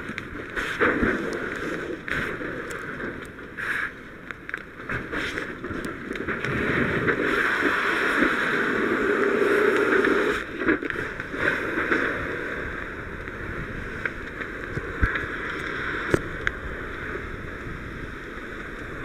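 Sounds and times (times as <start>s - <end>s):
fire hose water hissing: 3.6s - 4.1s, 6.5s - 13.9s.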